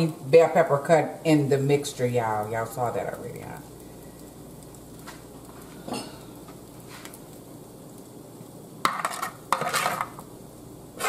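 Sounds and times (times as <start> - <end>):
utensil scraping pan: 8.9 - 10.2.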